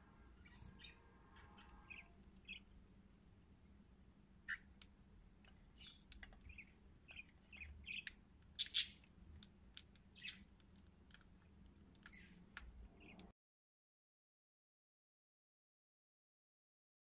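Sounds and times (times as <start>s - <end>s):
cockatiels chirping: 0.4s - 2.7s, 5.7s - 9.0s, 10.1s - 10.5s.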